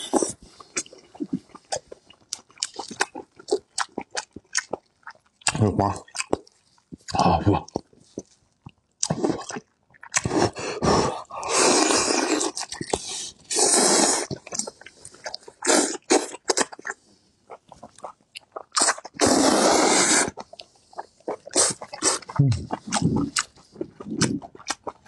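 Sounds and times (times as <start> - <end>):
wet chewing: 0.0 - 25.0
person slurping: 9.0 - 17.0, 18.8 - 20.4, 21.0 - 24.9.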